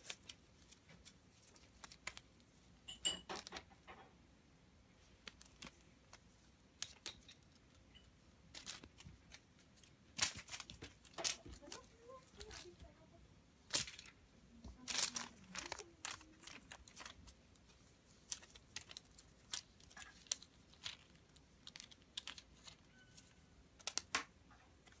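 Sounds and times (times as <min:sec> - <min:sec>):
crinkly rustles of feather toy: 0:00.0 - 0:02.9, 0:05.0 - 0:13.0, 0:13.7 - 0:24.1.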